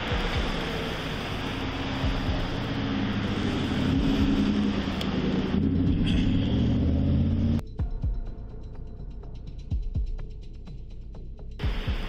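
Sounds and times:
road traffic: 0.0 - 7.6
low hum: 0.0 - 9.7.

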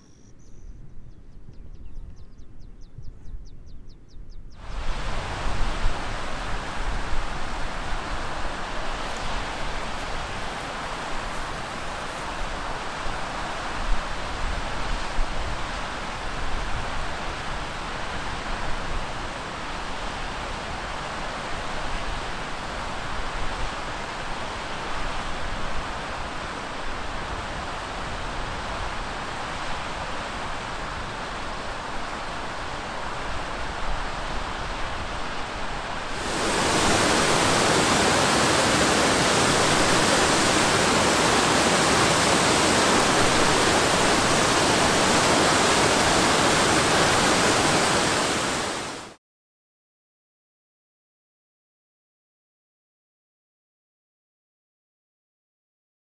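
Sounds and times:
waterfall rushing water: 4.6 - 49.2.

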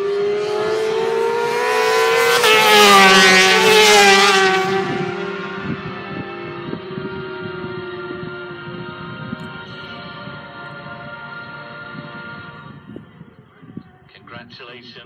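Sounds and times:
racing motorcycle passing by: 0.0 - 14.1.

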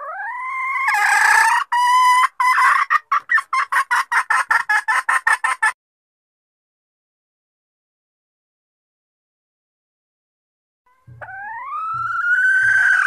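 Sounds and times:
hen clucking rapidly: 0.0 - 5.8, 11.1 - 13.0
hen calling rising note: 10.9 - 13.0.

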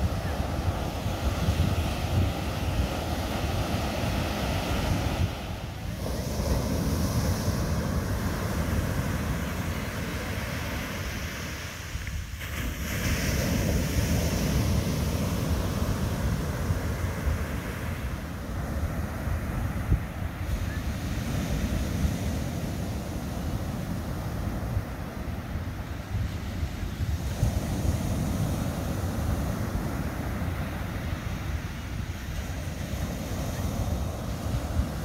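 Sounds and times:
ocean surf washing: 0.0 - 35.0
wind buffeting the microphone: 0.0 - 35.0.

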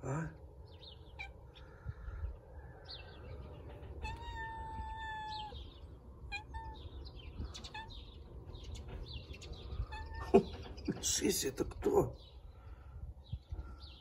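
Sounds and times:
cat meowing: 1.1 - 1.5, 3.8 - 8.2, 9.7 - 10.5.

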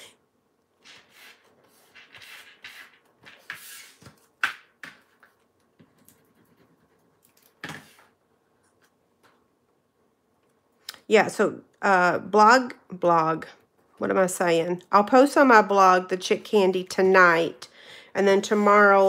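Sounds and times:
card rustling and scraping: 0.8 - 4.3.

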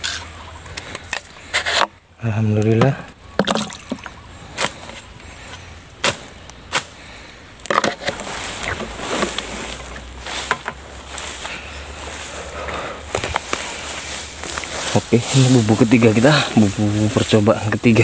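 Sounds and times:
footsteps through grass: 8.1 - 18.0.

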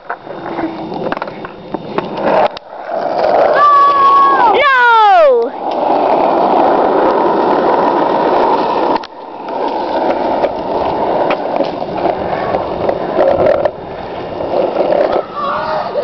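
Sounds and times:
skateboard wheels rolling on asphalt: 0.0 - 16.0.

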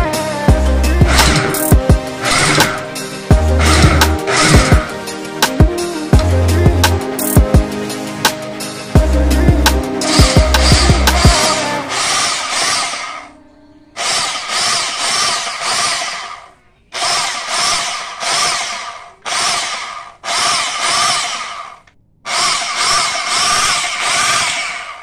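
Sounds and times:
electric jackhammer running: 1.0 - 5.0, 10.0 - 13.3, 14.0 - 25.0.

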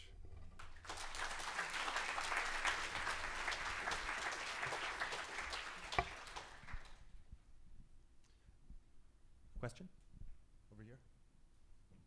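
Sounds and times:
audience applauding: 0.6 - 7.1.

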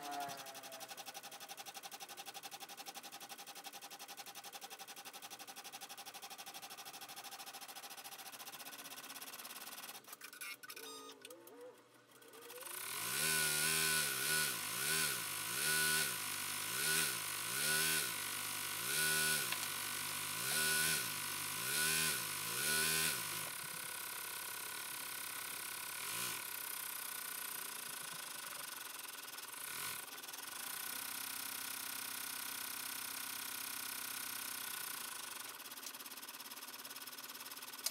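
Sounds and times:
embroidery machine stitching: 11.3 - 37.9.

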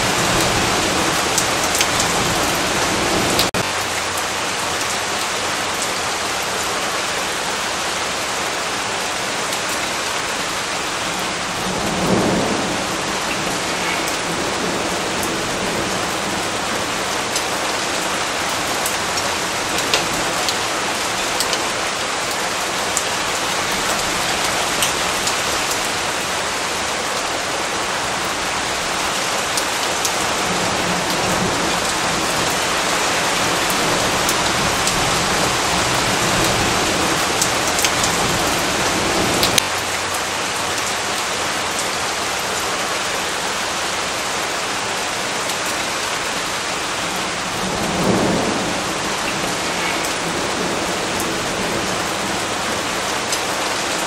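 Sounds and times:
steady rain: 0.0 - 54.0
thunder rumbling: 10.9 - 21.9, 47.2 - 53.2.

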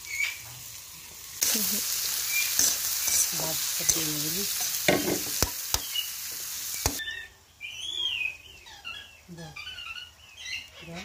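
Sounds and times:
onions sizzling in oil: 0.0 - 7.0.

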